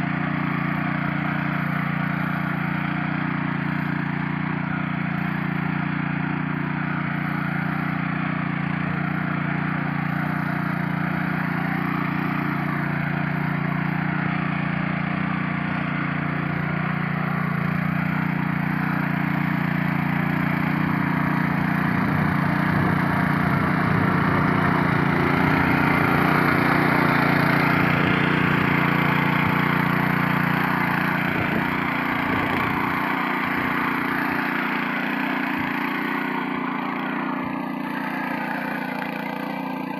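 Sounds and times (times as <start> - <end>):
small engine running: 0.0 - 39.9
tines churning dry soil: 0.0 - 39.9.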